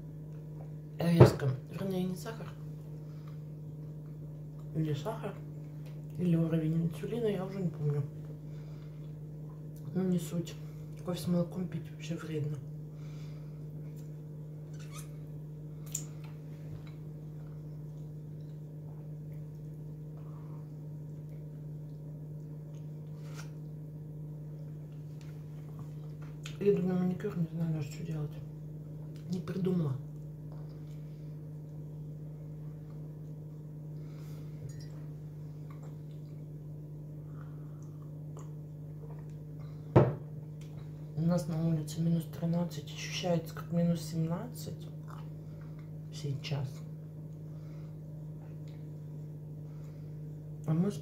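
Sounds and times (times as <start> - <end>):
steady low hum: 0.0 - 51.0
quiet chewing: 3.0 - 4.8, 15.8 - 26.6, 30.1 - 39.8, 44.9 - 46.1, 47.2 - 50.7
person chewing: 35.6 - 36.6.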